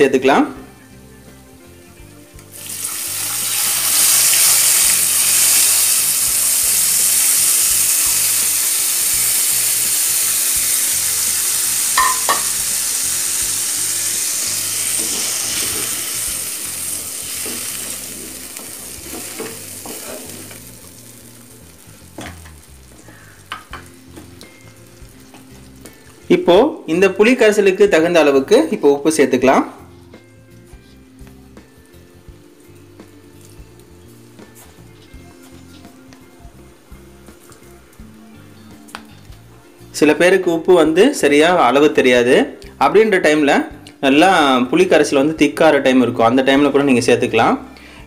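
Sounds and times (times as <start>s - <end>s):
liquid sizzling in hot oil: 2.5s - 26.3s, 31.7s - 34.6s.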